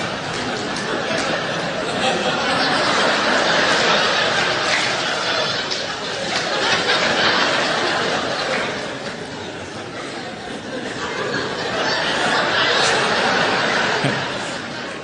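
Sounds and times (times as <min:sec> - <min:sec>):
large audience laughing: 0:00.0 - 0:15.0.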